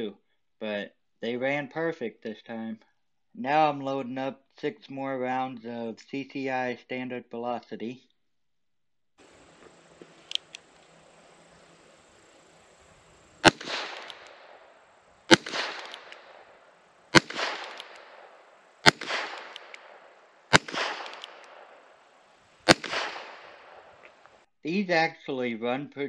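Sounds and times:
gunshot echo: 0:13.4 - 0:24.4
revolver shots: 0:13.4 - 0:24.4.

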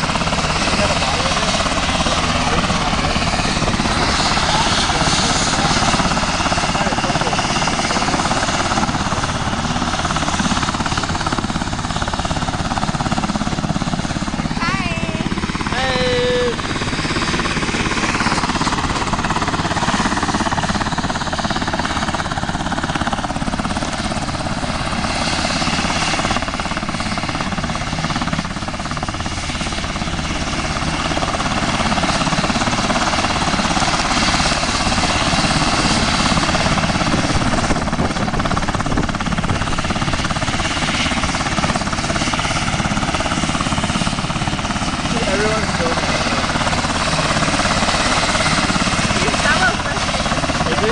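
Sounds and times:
helicopter rotor noise: 0:00.0 - 0:50.9
turbine whine: 0:00.0 - 0:50.9.

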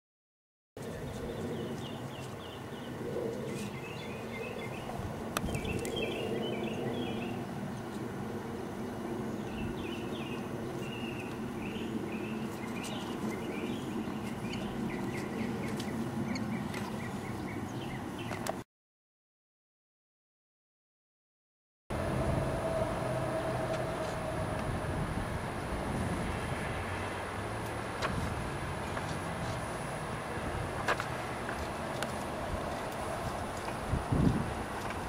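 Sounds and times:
birds chirping: 0:00.8 - 0:18.6.

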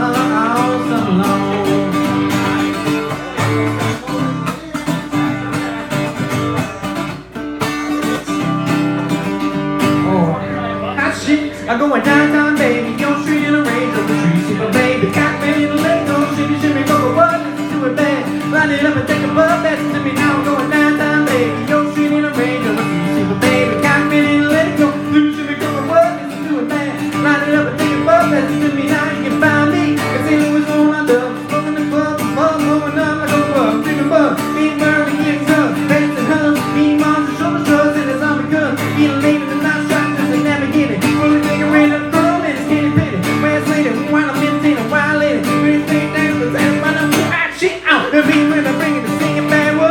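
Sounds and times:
acoustic guitar strummed and picked: 0:00.0 - 0:49.9.

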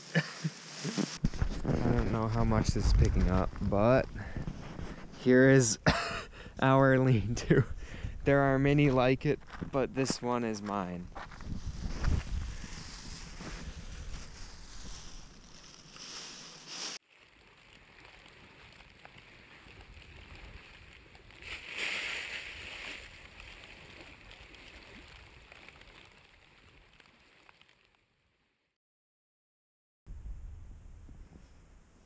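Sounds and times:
campfire crackling and hissing: 0:00.0 - 0:06.6, 0:10.8 - 0:27.9.

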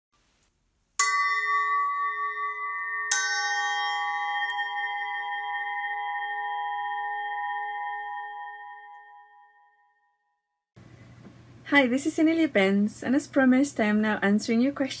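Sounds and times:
metal bells ringing: 0:01.0 - 0:09.5.

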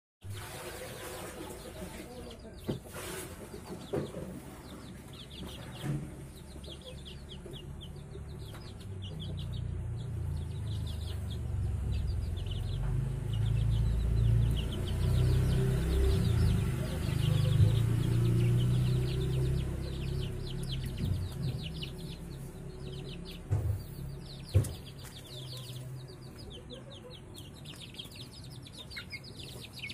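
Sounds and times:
chicks peeping: 0:00.3 - 0:29.9
low rumble: 0:05.5 - 0:25.0
sharp knocks: 0:20.8 - 0:22.2, 0:23.3 - 0:25.1.

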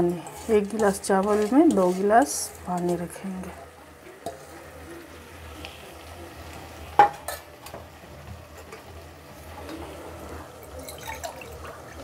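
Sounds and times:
spatula stirring rice in pot: 0:00.0 - 0:07.5
faint sizzling: 0:00.0 - 0:12.0.

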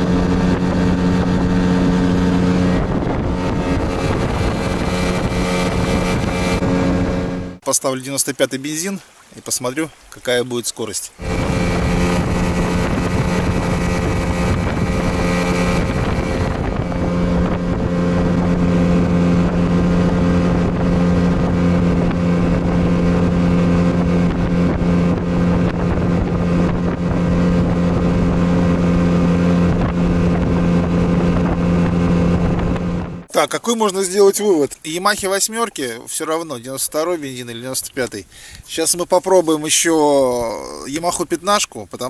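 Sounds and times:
outboard motor running: 0:00.0 - 0:07.6, 0:11.2 - 0:33.3.

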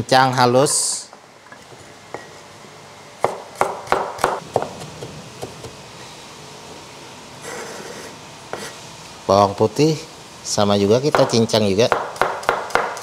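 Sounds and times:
cleaver chopping on wooden board: 0:03.2 - 0:05.8, 0:11.2 - 0:13.0.

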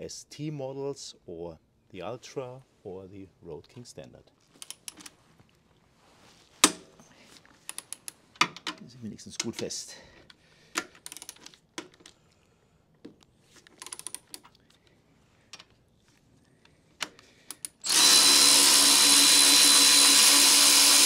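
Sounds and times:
tools clicking and tapping: 0:04.6 - 0:05.1, 0:06.6 - 0:06.9, 0:07.6 - 0:09.7, 0:10.7 - 0:12.2, 0:13.0 - 0:14.6, 0:17.0 - 0:17.8
cordless ratchet running: 0:17.6 - 0:21.0.

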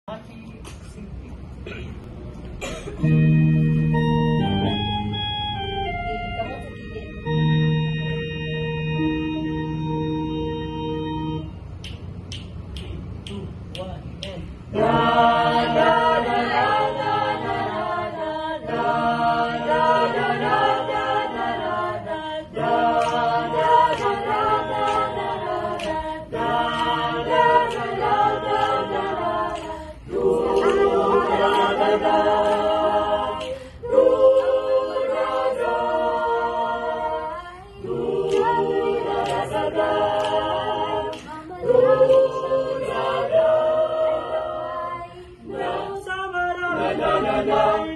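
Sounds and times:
choir singing a cappella: 0:14.7 - 0:47.9.

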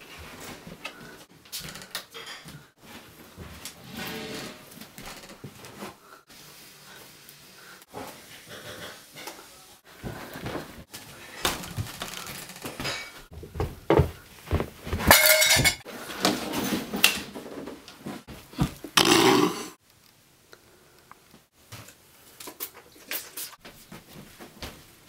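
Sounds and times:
cowbell clanking and rattling: 0:15.1 - 0:15.8.

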